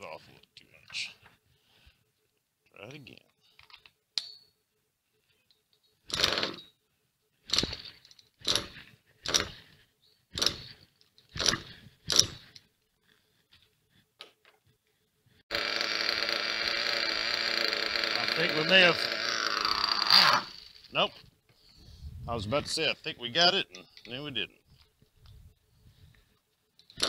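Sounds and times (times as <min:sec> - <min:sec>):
small engine sputtering and running: 0:06.1 - 0:06.6, 0:07.5 - 0:09.6, 0:15.5 - 0:20.9.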